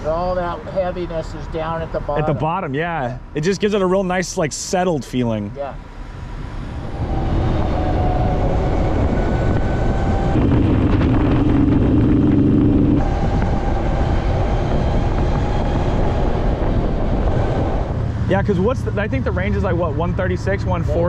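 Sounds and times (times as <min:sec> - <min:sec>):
low steady hum: 0:00.0 - 0:21.0
wind and road rush: 0:00.0 - 0:21.0
electric motor whine: 0:06.2 - 0:18.1.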